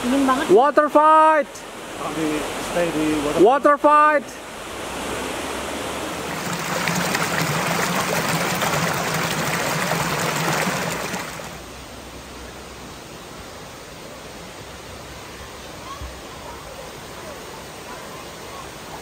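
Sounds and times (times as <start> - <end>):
river water rushing over rocks: 0.0 - 19.0.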